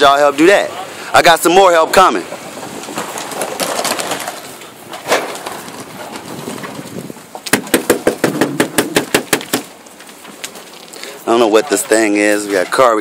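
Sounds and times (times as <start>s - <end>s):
sharp knocks: 7.4s - 9.7s.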